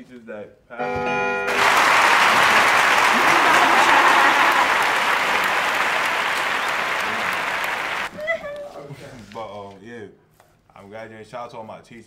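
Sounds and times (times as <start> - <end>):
dense steady clapping: 1.5 - 8.1.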